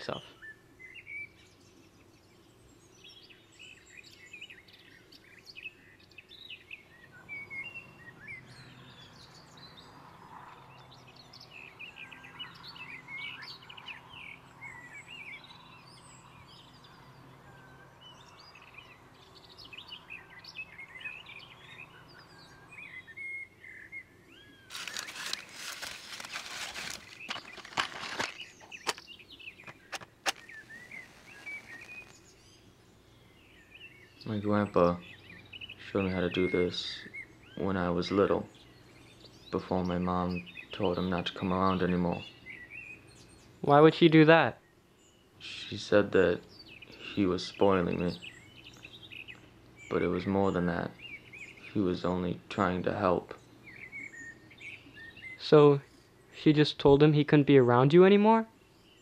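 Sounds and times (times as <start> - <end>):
songbirds chirping and singing: 0.0 - 59.0
match struck on matchbox: 29.6 - 32.2.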